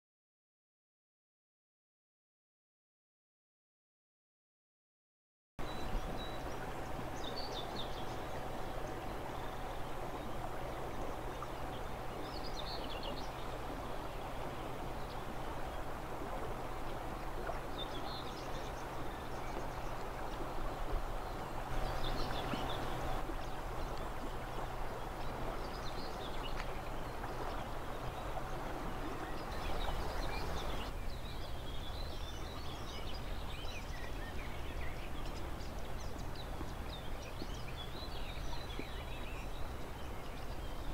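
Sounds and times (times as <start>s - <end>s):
river water rushing: 5.6s - 37.3s
faint steady hum: 5.6s - 40.9s
songbirds chirping: 5.6s - 40.9s.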